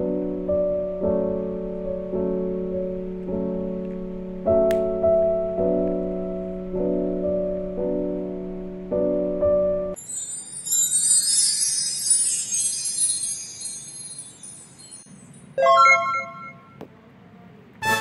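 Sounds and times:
piano phrase: 0:00.0 - 0:10.0
twinkling chime sweep: 0:10.0 - 0:16.8
bright chord: 0:15.6 - 0:16.8.

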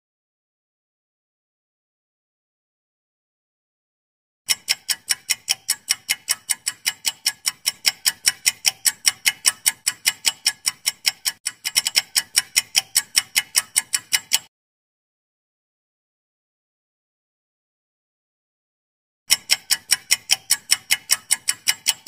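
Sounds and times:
clock ticking: 0:04.5 - 0:14.5, 0:19.3 - 0:22.0.

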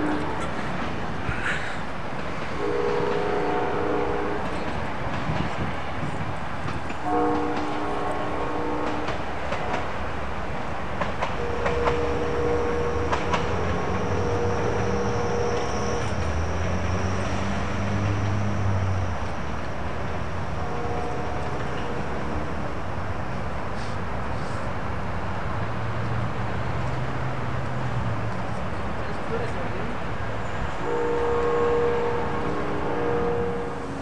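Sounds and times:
low rumble of approaching train: 0:00.0 - 0:34.0
locomotive horn blasts: 0:02.6 - 0:04.6, 0:07.0 - 0:09.8, 0:11.4 - 0:16.2, 0:20.6 - 0:22.6, 0:30.8 - 0:34.0.

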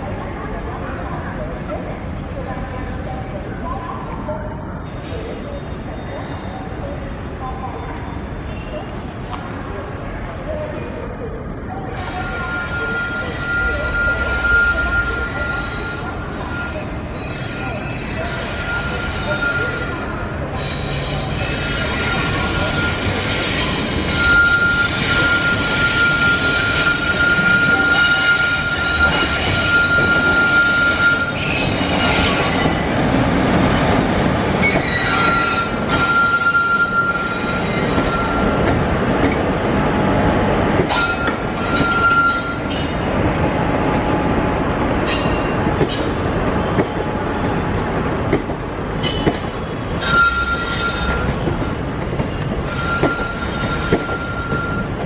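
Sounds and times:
train wheels squealing: 0:12.1 - 0:32.9, 0:34.6 - 0:38.6, 0:40.9 - 0:42.9, 0:50.0 - 0:51.4, 0:52.1 - 0:55.0.

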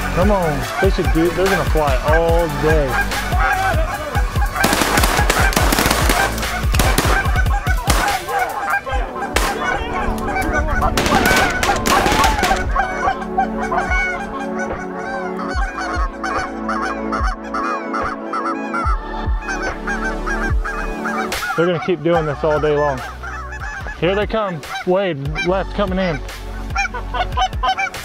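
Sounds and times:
geese honking overhead: 0:00.0 - 0:28.0
shotgun shots: 0:04.6 - 0:08.3, 0:11.0 - 0:12.6.

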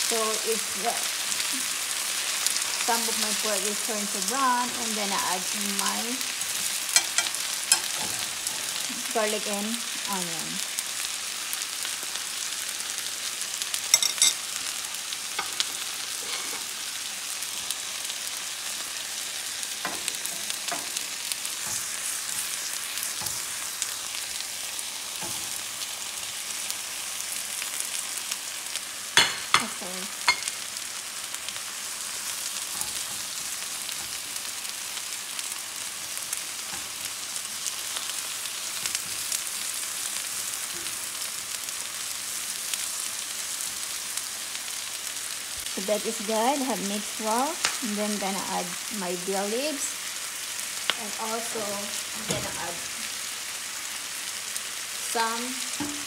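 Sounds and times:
meat sizzling in oil: 0:00.0 - 0:56.0
stirring in skillet: 0:15.4 - 0:28.0, 0:28.8 - 0:41.3.

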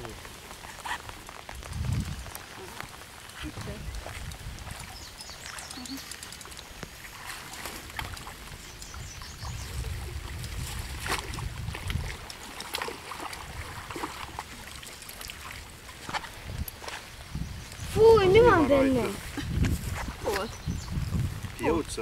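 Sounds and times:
fish splashing in water: 0:00.3 - 0:16.8.

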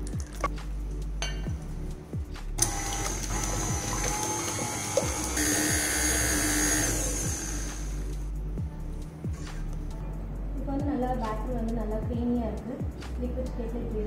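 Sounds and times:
electric beater whirring: 0:02.6 - 0:08.1.

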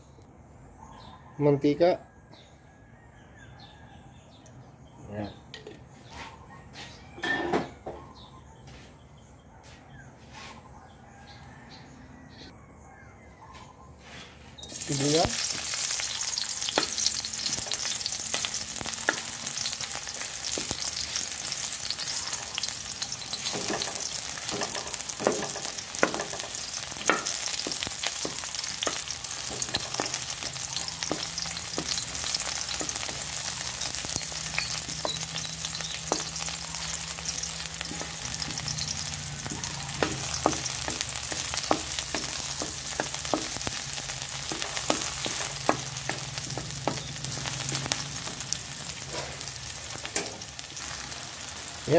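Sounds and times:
onion sizzling in hot oil: 0:14.6 - 0:51.9
wooden spatula scraping pan: 0:23.0 - 0:33.5.

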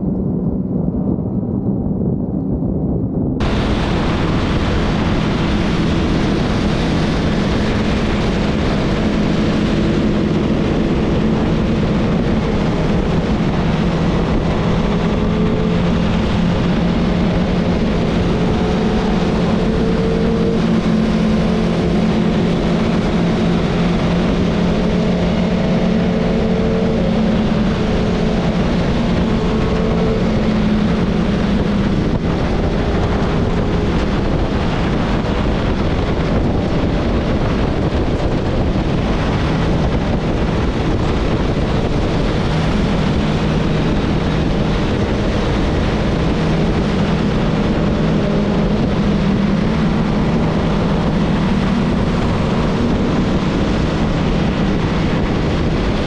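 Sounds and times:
motorcycle engine cruising: 0:00.0 - 0:56.0
wind rush on microphone: 0:00.0 - 0:56.0.

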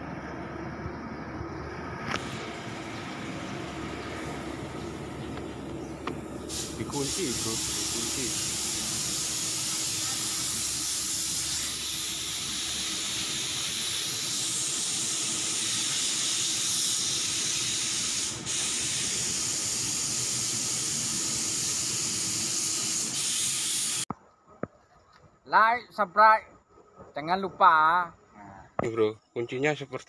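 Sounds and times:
loud hiss: 0:02.1 - 0:03.5, 0:06.4 - 0:24.1.

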